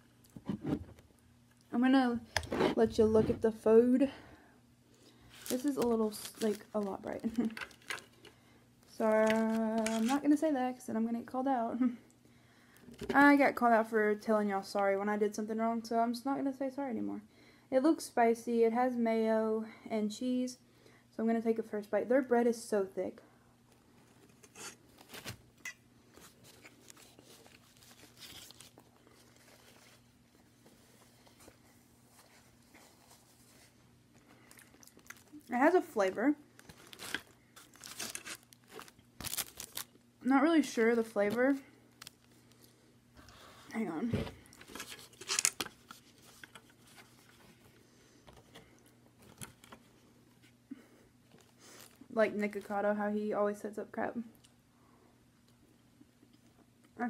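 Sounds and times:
paper wrapping crinkling: 5.3 - 8.2, 9.1 - 10.3, 26.1 - 35.4, 36.5 - 40.0
person chewing bread: 34.1 - 35.5.

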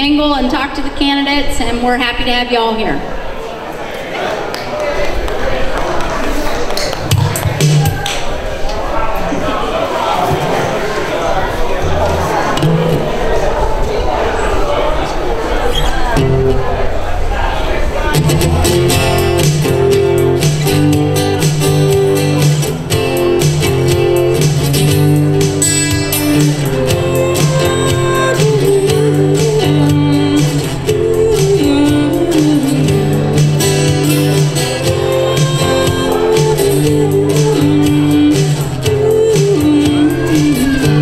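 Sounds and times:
acoustic guitar strumming: 10.2 - 13.6, 16.1 - 17.2, 18.0 - 41.0
people singing into microphones: 26.2 - 41.0.

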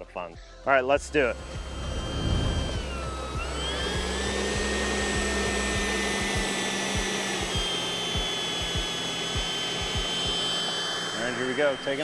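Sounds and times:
electric ducted fan whine: 1.0 - 12.0.

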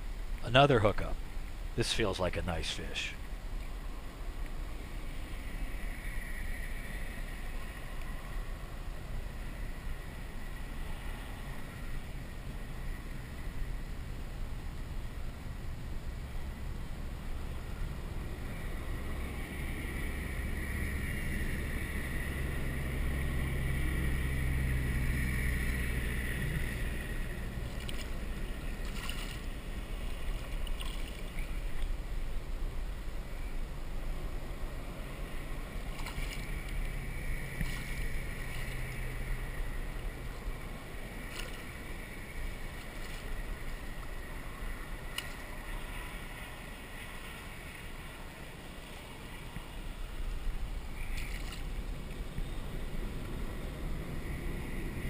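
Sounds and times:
low hum: 0.0 - 55.0
water lapping against kayak hull: 22.6 - 32.4, 34.9 - 54.1
gear clicking in boat: 27.6 - 31.9, 51.0 - 52.5.

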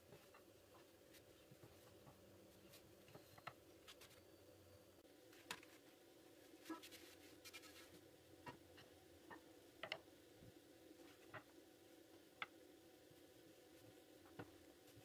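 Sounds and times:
dough rustling in a pan: 5.3 - 8.1.

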